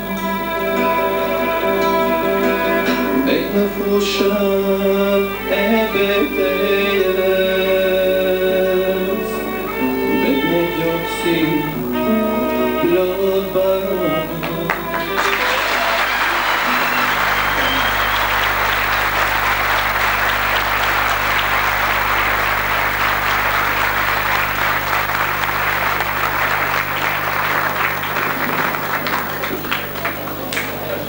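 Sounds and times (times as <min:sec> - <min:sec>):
large audience applauding: 0:14.4 - 0:31.0.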